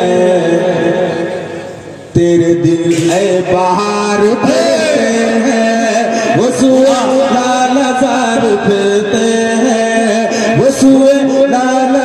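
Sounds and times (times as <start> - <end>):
man singing into a microphone: 0.0 - 12.0.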